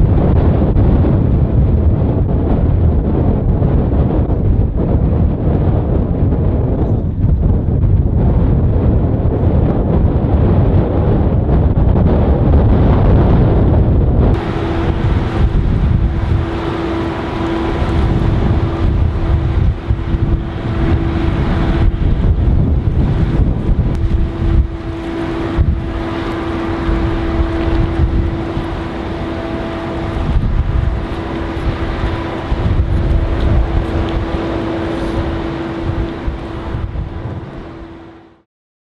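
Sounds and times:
water noise: 0.0s - 38.4s
wind buffeting microphone: 0.0s - 38.4s
boat engine humming: 13.4s - 38.4s.

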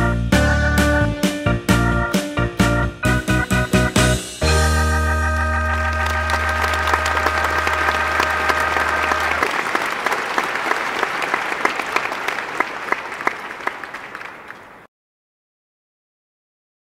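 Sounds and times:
held music chord with bass: 0.0s - 9.4s
crowd applause: 4.8s - 14.9s.

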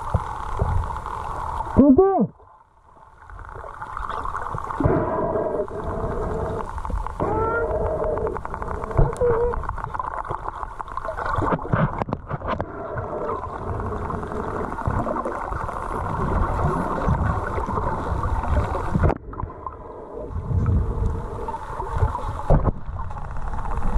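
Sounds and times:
underwater water rushing and gurgling: 0.0s - 23.9s.

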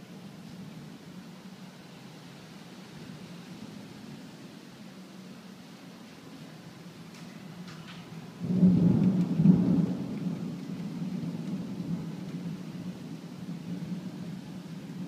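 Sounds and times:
thunder crack and rumble: 7.1s - 15.0s.

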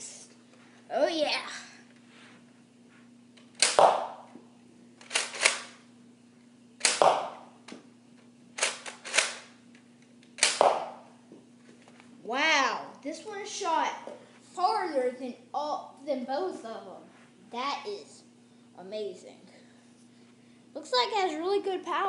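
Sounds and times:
foam dart crossbow snaps: 3.5s - 4.2s, 6.8s - 7.4s, 10.2s - 11.0s.

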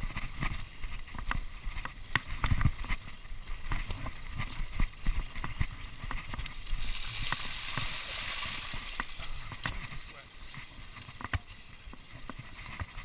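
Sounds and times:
bike frame rattling over bumps: 0.0s - 13.0s
tyres splashing through puddles: 5.8s - 13.0s.

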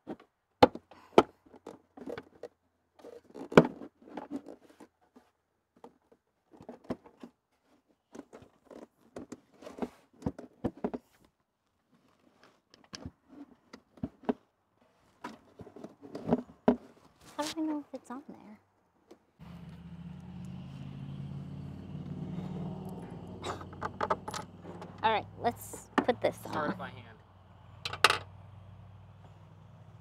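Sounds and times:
hard plastic clicking and scraping: 0.0s - 11.3s, 11.9s - 14.4s, 15.1s - 17.1s, 23.5s - 25.0s.

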